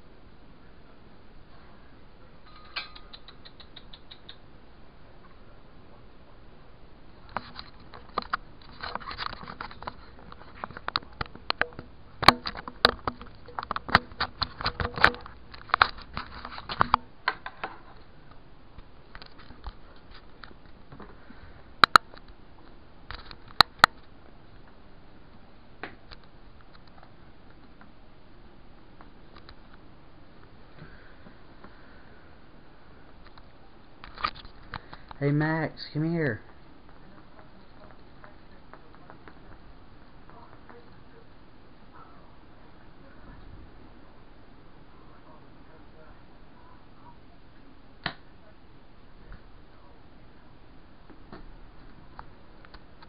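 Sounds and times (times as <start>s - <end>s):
small clicks and scratching: 7.2s - 18.1s, 18.8s - 20.8s, 21.8s - 24.7s, 29.0s - 29.8s, 33.2s - 35.2s.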